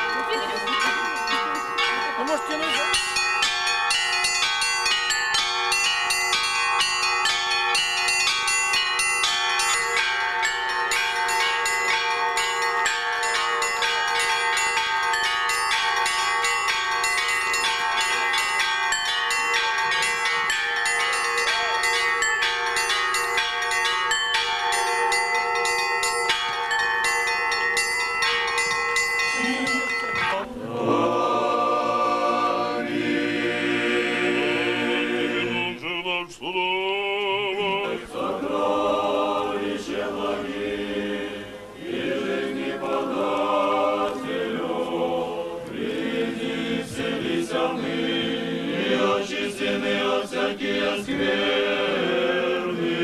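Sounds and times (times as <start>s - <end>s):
church bells pealing: 0.0s - 35.6s
voices singing: 30.2s - 53.0s.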